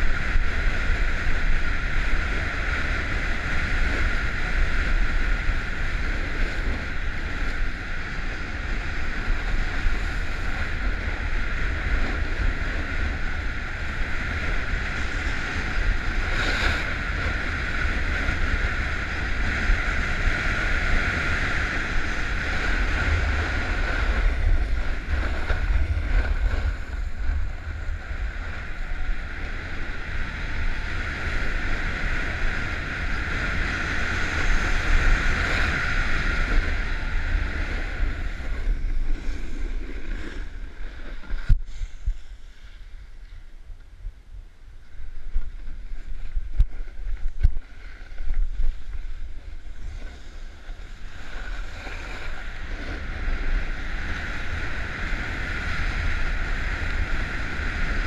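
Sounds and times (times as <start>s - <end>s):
wind buffeting microphone: 0.0s - 58.0s
skis hissing on snow: 36.8s - 43.0s, 47.7s - 52.8s.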